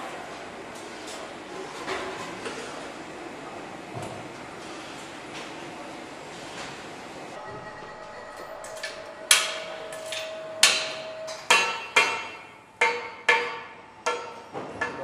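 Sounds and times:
steady metallic ring: 0:07.6 - 0:14.5.

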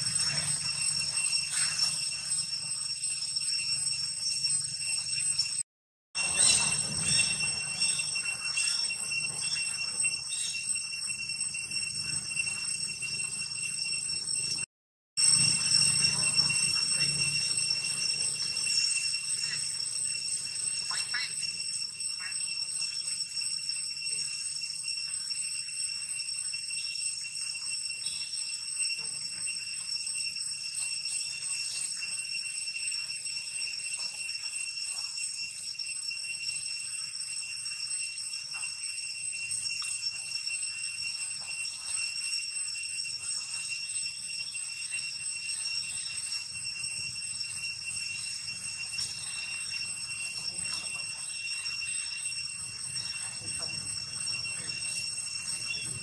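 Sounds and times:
high-pitched drone: 0:00.0 - 0:05.6, 0:06.2 - 0:25.7, 0:38.5 - 0:56.0.

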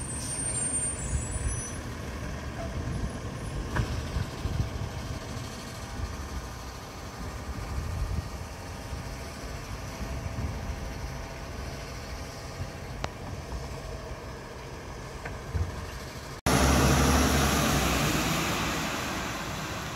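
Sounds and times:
diesel truck engine idling: 0:00.0 - 0:19.9
loud even rushing noise: 0:16.5 - 0:19.9.

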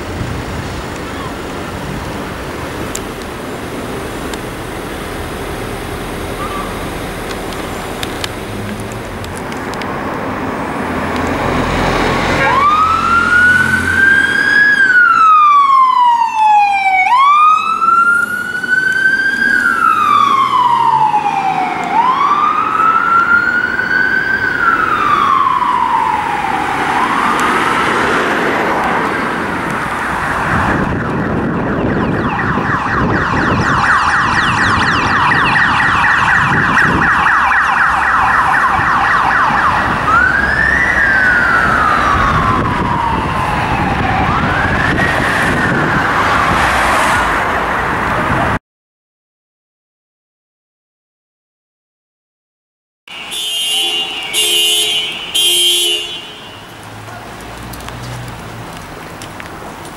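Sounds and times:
siren wailing: 0:05.7 - 0:08.0, 0:11.5 - 0:48.0, 0:53.1 - 0:55.8
siren yelping: 0:06.2 - 0:07.0, 0:12.2 - 0:28.1, 0:30.4 - 0:47.1, 0:53.1 - 0:55.8.

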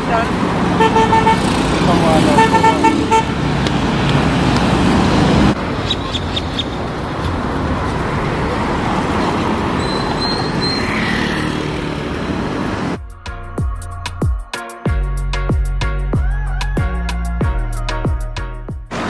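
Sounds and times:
cars driving past: 0:00.0 - 0:13.0.

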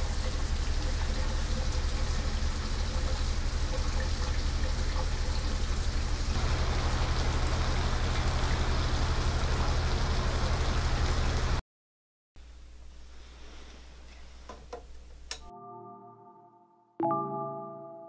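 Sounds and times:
shower water running: 0:00.0 - 0:11.6.

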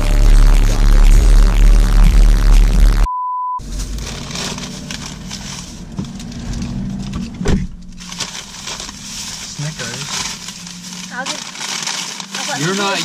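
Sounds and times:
electronic beep: 0:03.0 - 0:03.6
plastic bag rustling: 0:03.6 - 0:07.2, 0:07.9 - 0:13.0.

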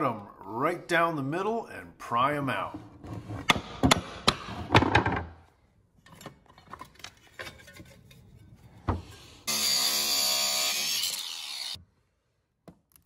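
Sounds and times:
power tool cutting with whine: 0:09.5 - 0:11.8.

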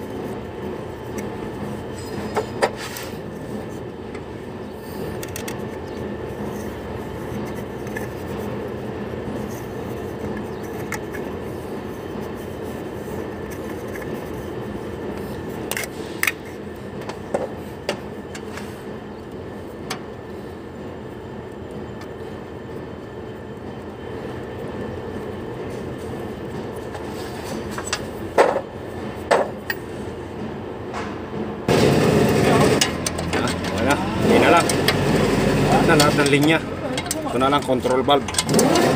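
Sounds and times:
steady mechanical drone: 0:00.0 - 0:38.9
metallic clicks and knocks: 0:32.8 - 0:33.9, 0:35.9 - 0:38.7.

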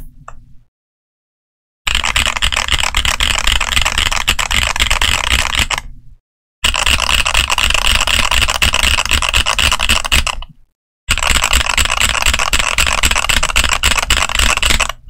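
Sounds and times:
fast mechanical keyboard typing: 0:01.9 - 0:05.9, 0:06.6 - 0:10.5, 0:11.1 - 0:15.0.

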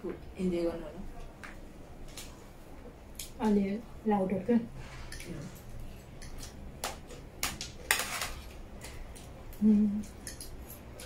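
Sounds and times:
person humming: 0:09.6 - 0:10.1.

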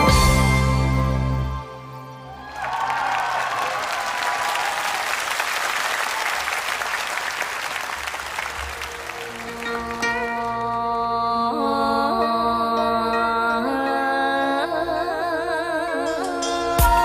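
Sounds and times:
audience applauding: 0:02.3 - 0:10.6.

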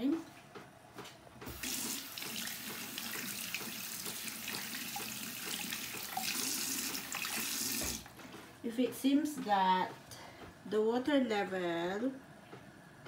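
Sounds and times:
water rushing into washing machine: 0:01.5 - 0:08.1.

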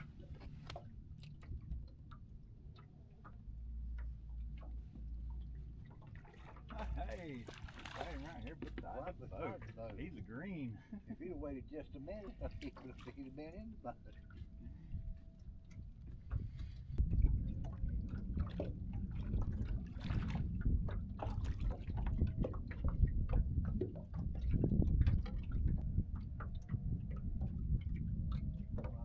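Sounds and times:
wind rumble on microphone: 0:00.0 - 0:02.1, 0:13.4 - 0:29.0
water lapping against boat: 0:00.0 - 0:29.0.

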